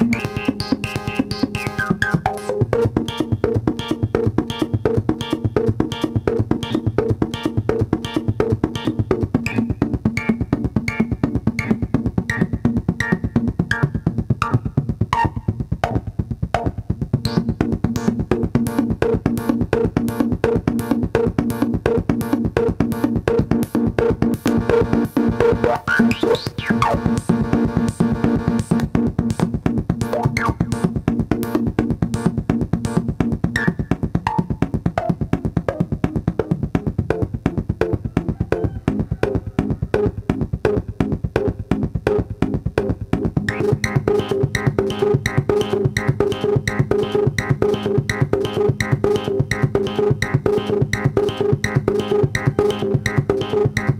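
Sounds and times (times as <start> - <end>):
percussive synthesizer sequence: 0.0 - 53.9
steady low synth tone: 22.8 - 32.6.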